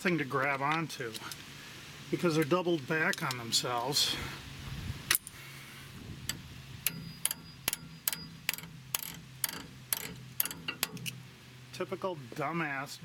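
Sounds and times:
screwdriver clicking on metal clip: 0:06.3 - 0:11.1.

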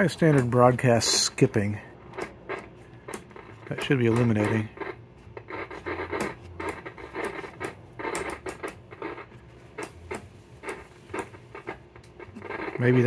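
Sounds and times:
radio crackling and scratching: 0:00.0 - 0:13.0.

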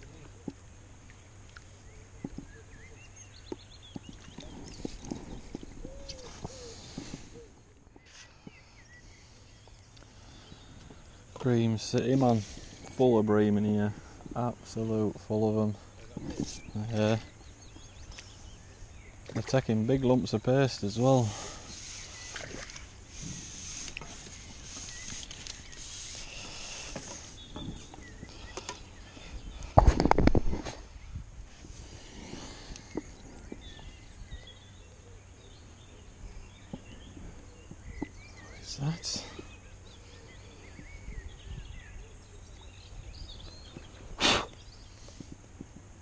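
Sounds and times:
faint birdsong: 0:00.0 - 0:46.0
wind buffeting microphone: 0:03.8 - 0:07.4, 0:29.2 - 0:34.6, 0:40.6 - 0:42.0
faint chirps: 0:32.0 - 0:45.4.

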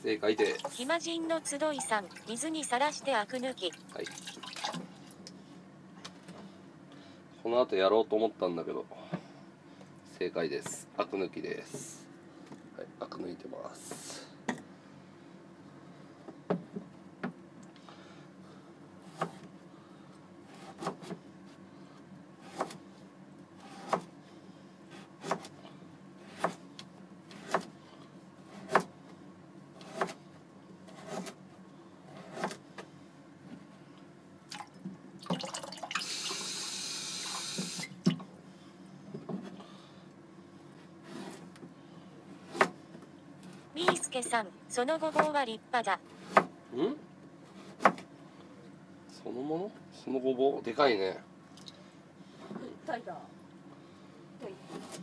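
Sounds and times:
knife chopping on cutting board: 0:25.0 - 0:25.5, 0:28.5 - 0:28.9, 0:32.2 - 0:32.6, 0:42.5 - 0:42.8.

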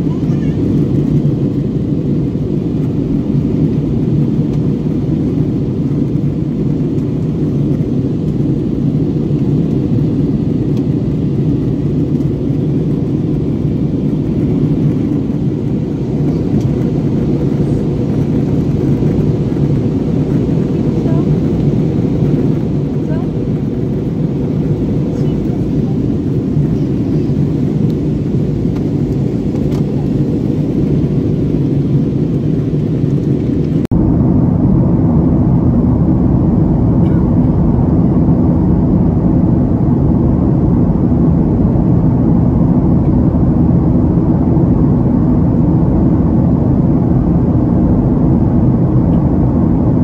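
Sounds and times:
airliner cabin engine drone: 0:00.0 - 0:50.0.

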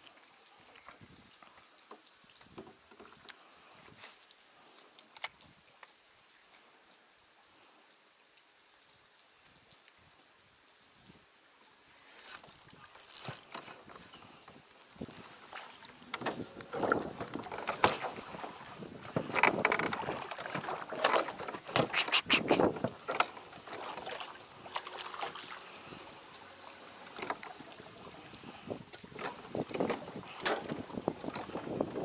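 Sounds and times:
gear bumping boat hull: 0:16.1 - 0:21.9.

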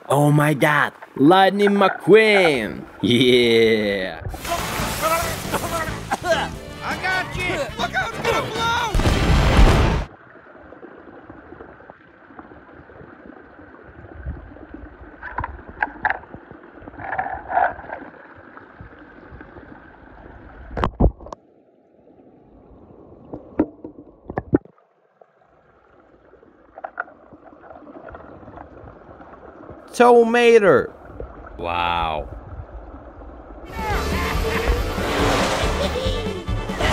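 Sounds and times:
water sloshing and gurgling: 0:00.0 - 0:03.5, 0:04.1 - 0:06.6, 0:08.9 - 0:36.9.

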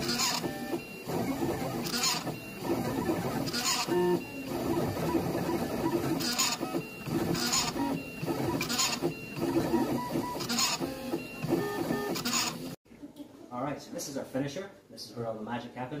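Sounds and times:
engraving machine motors whining: 0:00.0 - 0:12.7.

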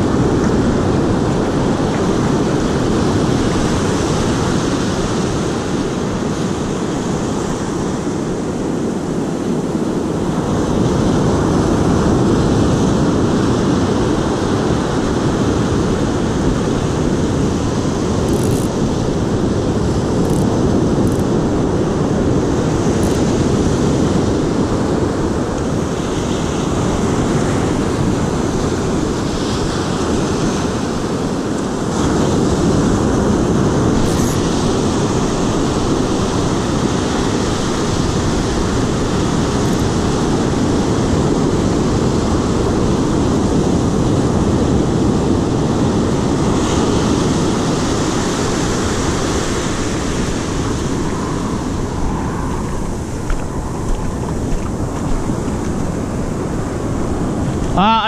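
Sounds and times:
surf breaking on beach: 0:00.0 - 0:58.0
wind rumbling on microphone: 0:00.0 - 0:58.0.

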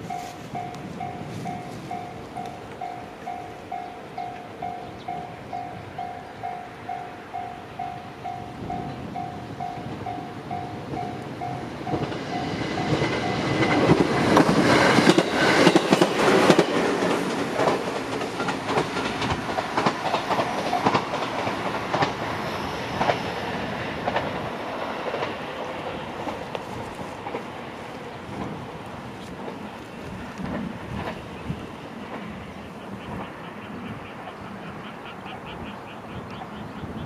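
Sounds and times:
level-crossing warning bell: 0:00.0 - 0:17.2, 0:18.4 - 0:23.6
train wheels clacking over rail joints: 0:08.8 - 0:33.4.

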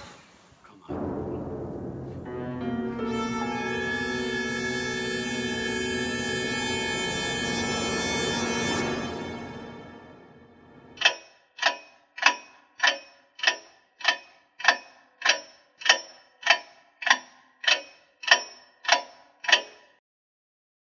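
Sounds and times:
eerie music sting: 0:00.9 - 0:11.0
clock ticking: 0:11.0 - 0:20.0.

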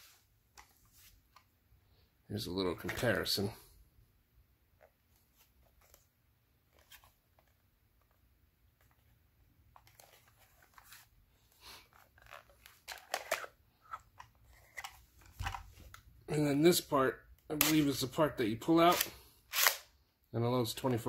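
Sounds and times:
magazines clicking and scraping: 0:11.8 - 0:16.0.

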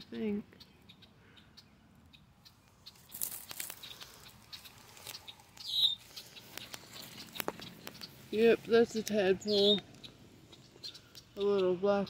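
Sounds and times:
grass rustling: 0:02.4 - 0:11.4.

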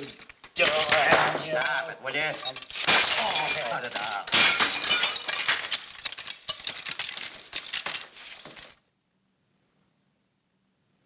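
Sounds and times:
plates clinking and clattering: 0:00.0 - 0:08.6
crockery crashing: 0:00.0 - 0:08.8.

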